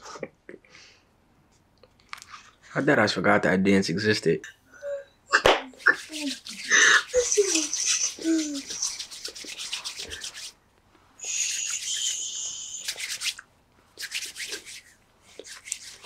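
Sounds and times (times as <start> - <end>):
soft hiss: 5.6 - 16.0
hands rubbing together: 5.7 - 10.6, 11.2 - 16.0.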